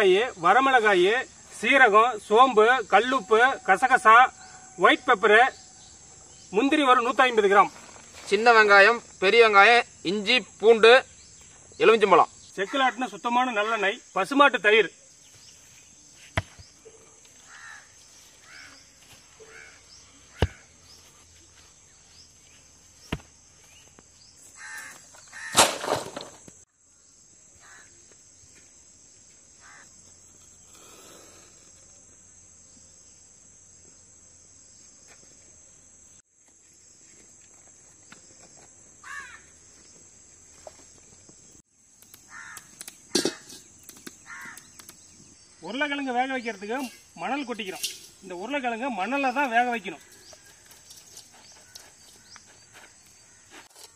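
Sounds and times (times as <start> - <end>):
high insect drone: 0.0 - 53.9
crows cawing: 17.4 - 18.8, 19.4 - 20.7, 24.5 - 25.6, 27.6 - 28.0, 29.6 - 29.9, 39.0 - 39.6, 42.3 - 43.6, 44.2 - 44.9.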